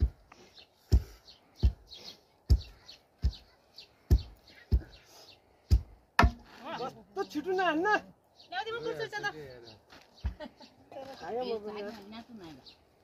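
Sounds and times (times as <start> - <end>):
wooden pestles pounding in mortar: 0.9 - 1.8, 2.5 - 3.4, 4.0 - 5.0, 5.7 - 6.5.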